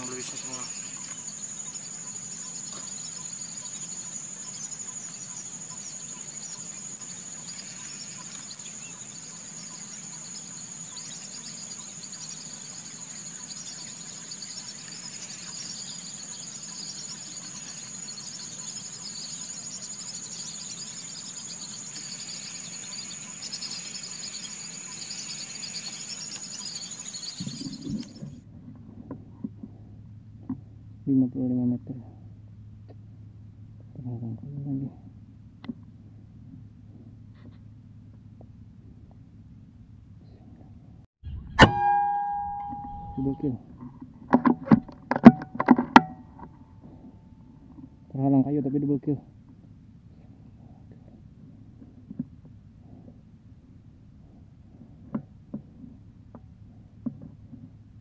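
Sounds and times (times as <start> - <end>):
high-pitched insect chorus: 0.0 - 28.4, 41.9 - 43.6
birds chirping: 0.0 - 37.6, 41.5 - 43.7, 44.3 - 51.8.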